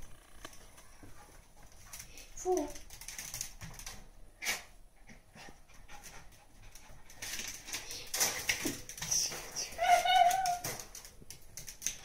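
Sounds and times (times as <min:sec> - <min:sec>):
small dog sniffing and panting: 0:04.4 - 0:07.8.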